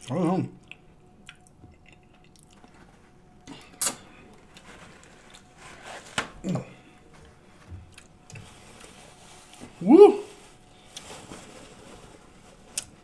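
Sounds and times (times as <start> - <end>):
paper towel rustling and tearing: 4.0 - 13.0.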